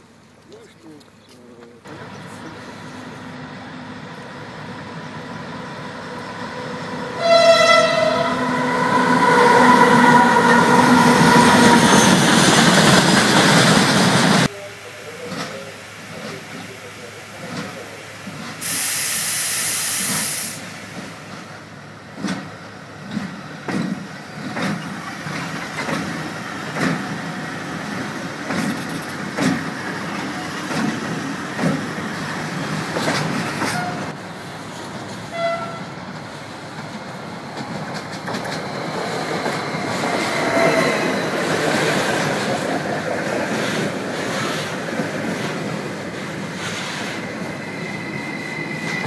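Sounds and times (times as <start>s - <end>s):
loud hiss: 13.0s - 21.3s
train wheels clattering over rail joints: 20.9s - 34.0s, 36.1s - 47.4s.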